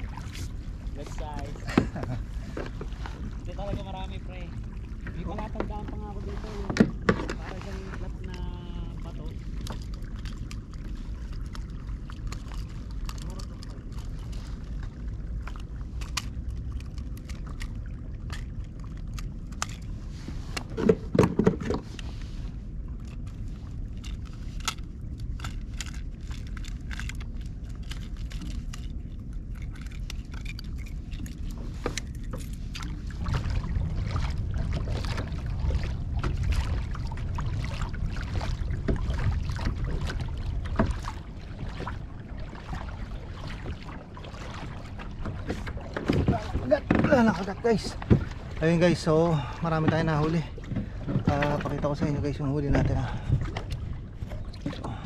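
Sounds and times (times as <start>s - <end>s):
low rumble: 0.0s - 55.0s
fishing gear clicks and rattles: 5.1s - 14.7s, 15.4s - 22.1s, 22.9s - 33.0s, 44.9s - 55.0s.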